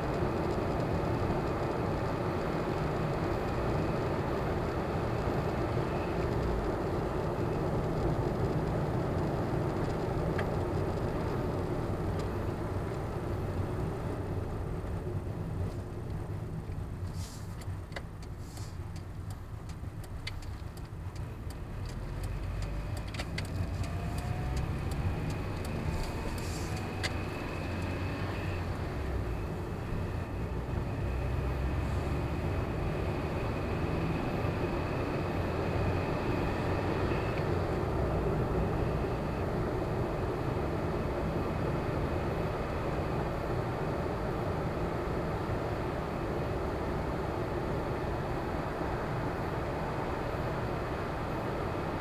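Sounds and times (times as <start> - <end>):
car engine accelerating: 19.3 - 52.0.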